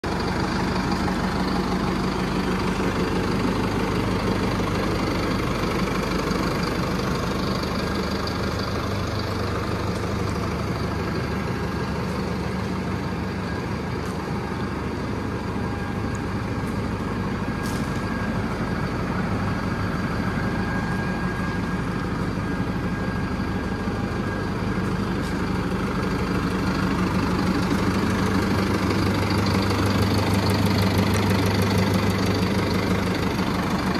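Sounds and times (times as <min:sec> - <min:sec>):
tractor diesel engine idling: 0:00.0 - 0:33.9.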